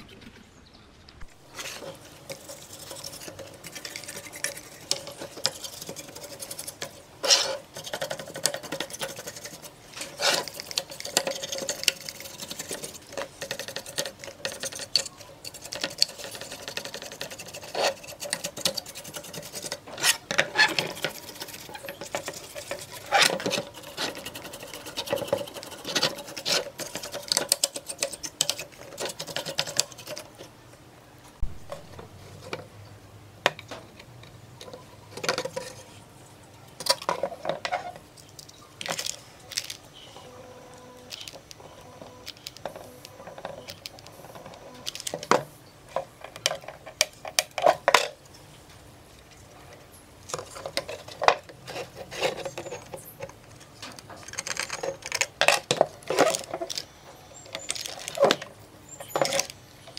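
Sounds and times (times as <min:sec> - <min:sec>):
louder brush scrapes: 0:01.3 - 0:07.7
brush scrubbing circuit board: 0:01.4 - 0:30.5.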